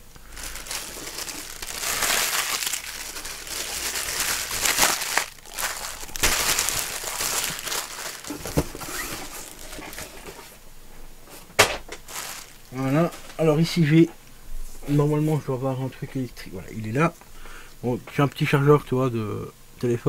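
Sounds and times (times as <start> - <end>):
plastic bag crinkling: 0.0 - 10.6, 11.9 - 13.5.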